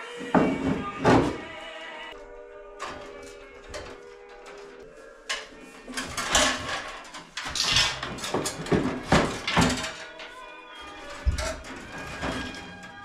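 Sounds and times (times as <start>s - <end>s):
metal parts clattering and scraping: 2.7s - 13.0s.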